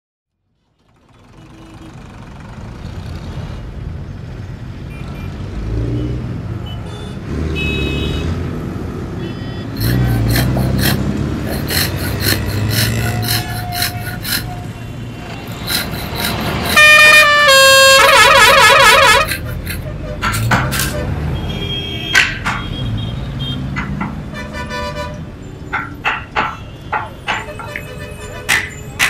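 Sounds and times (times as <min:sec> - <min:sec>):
traffic engines rumbling: 0:00.4 - 0:29.0
sharp knocks: 0:22.1 - 0:22.8, 0:23.7 - 0:24.3, 0:25.7 - 0:27.8.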